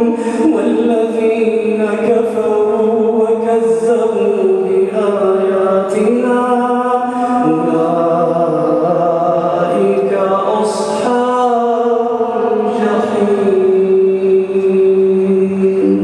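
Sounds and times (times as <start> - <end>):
man chanting melodically: 0.0 - 16.0.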